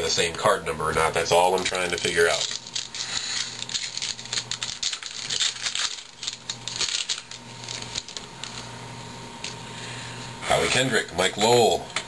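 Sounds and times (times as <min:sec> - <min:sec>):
cards clicking and crinkling: 0:01.4 - 0:08.7.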